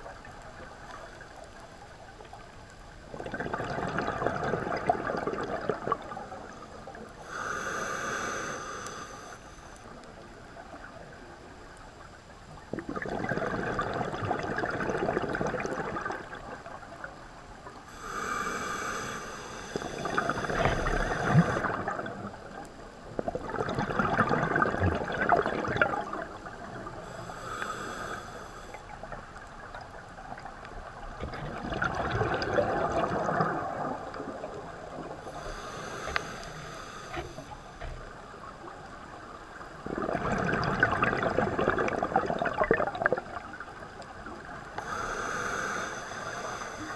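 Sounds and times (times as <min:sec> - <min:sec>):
bubbling exhaled air: 0:03.1 - 0:06.4, 0:12.7 - 0:16.8, 0:17.9 - 0:22.4, 0:23.2 - 0:29.0, 0:31.2 - 0:37.6, 0:39.8 - 0:43.6
hissing regulator inhale: 0:07.2 - 0:10.0, 0:17.9 - 0:21.9, 0:26.9 - 0:29.1, 0:35.2 - 0:37.9, 0:44.8 - 0:46.9.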